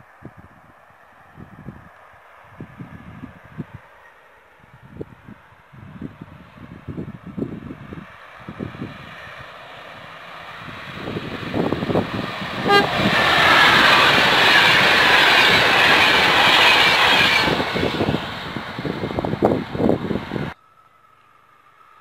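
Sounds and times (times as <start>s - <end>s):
train passing at speed: 0.0s - 20.9s
wheels rattling on rail: 6.6s - 20.6s
short train horn toot: 12.6s - 13.3s.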